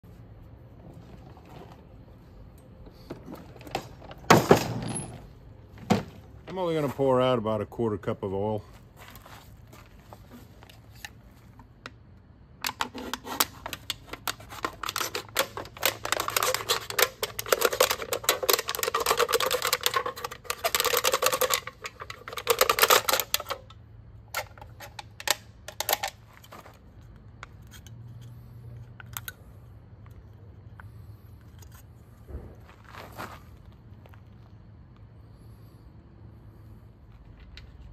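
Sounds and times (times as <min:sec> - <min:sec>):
drink can crinkling while cut: 0:12.7 - 0:23.6.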